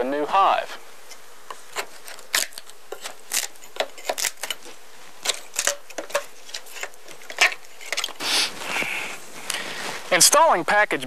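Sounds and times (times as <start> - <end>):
wooden cracks creaks and scrapes: 1.5 - 10.0.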